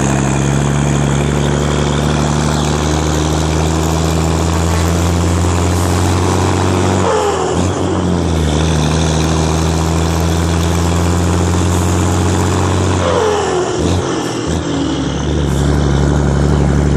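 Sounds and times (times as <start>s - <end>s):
diesel truck engine running: 0.0s - 16.9s.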